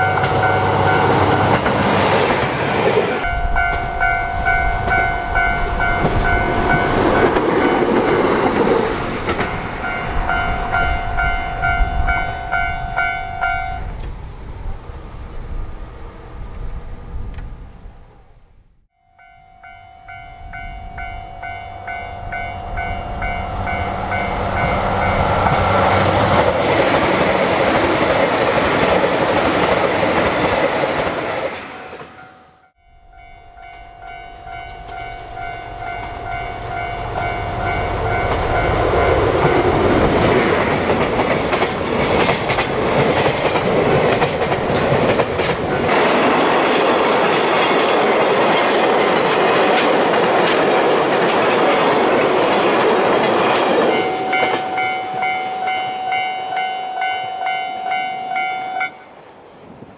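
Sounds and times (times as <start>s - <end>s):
electronic crossing alarm tone: 53.8s - 59.0s.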